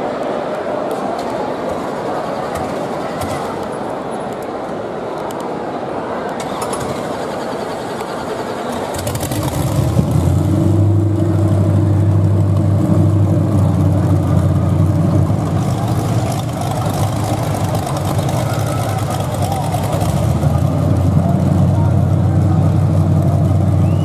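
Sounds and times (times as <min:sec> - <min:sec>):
car engine running hard: 0:06.7 - 0:24.0.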